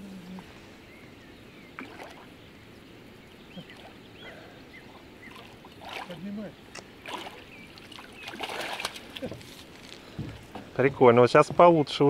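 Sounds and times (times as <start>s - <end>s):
faint bird chirps: 0.0s - 8.9s.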